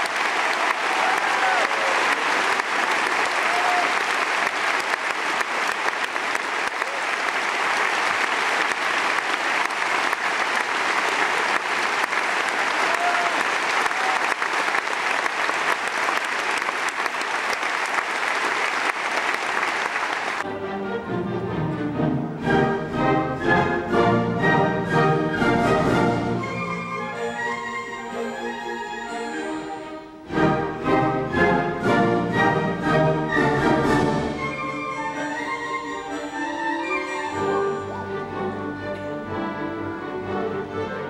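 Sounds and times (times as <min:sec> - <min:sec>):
audience applauding: 0:00.0 - 0:20.5
shouts from audience: 0:00.6 - 0:02.4, 0:03.2 - 0:04.2, 0:12.7 - 0:14.4
orchestra playing: 0:20.4 - 0:41.0.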